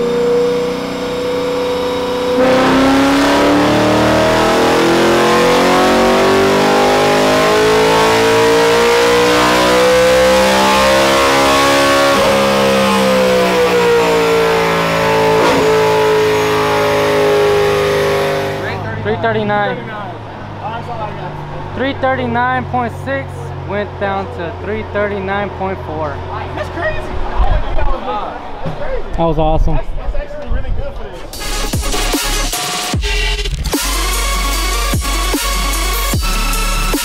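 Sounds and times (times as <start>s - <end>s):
car engine revving at full throttle: 0.0s - 27.4s.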